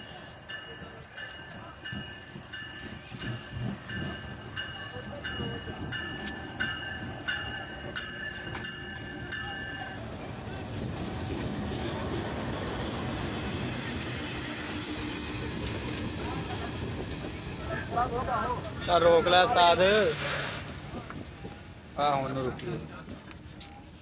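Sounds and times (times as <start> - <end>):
rumble and clatter of train coaches: 0.0 - 24.0
locomotive high squeal: 12.6 - 23.1.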